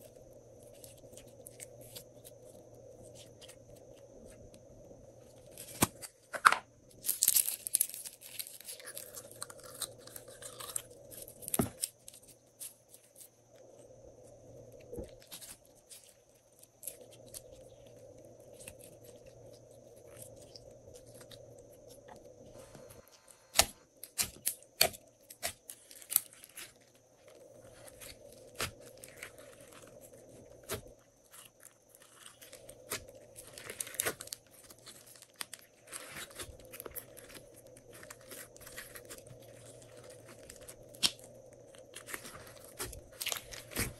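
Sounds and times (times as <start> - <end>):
slime crackling and popping: 27.6 - 43.9.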